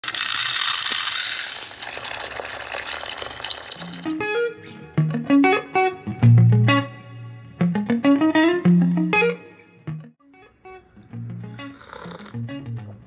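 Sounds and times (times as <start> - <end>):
dried peas rattling into steel bowl: 0.0 - 4.2
plucked guitar music: 4.2 - 13.0.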